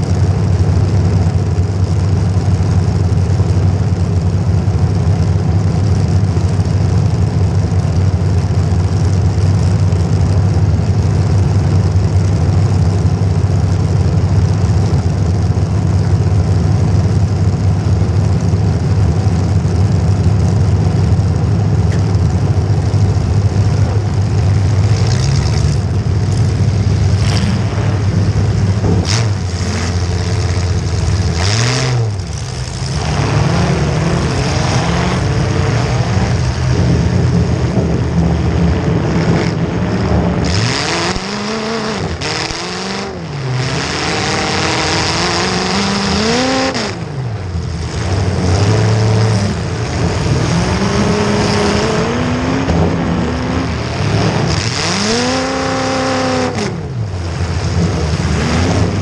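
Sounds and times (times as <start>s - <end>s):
car engine idling and revving: 0.0s - 59.0s.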